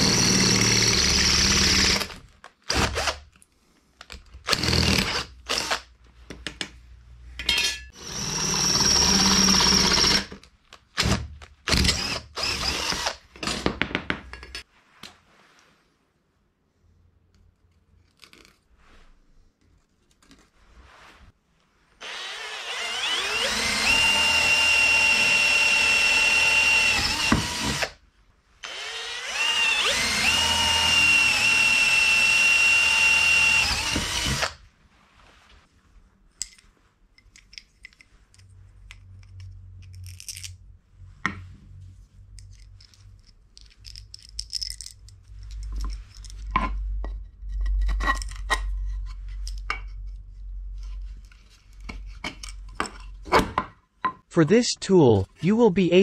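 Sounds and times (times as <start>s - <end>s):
power tool motor whining: 22.0s - 27.9s, 28.6s - 34.5s.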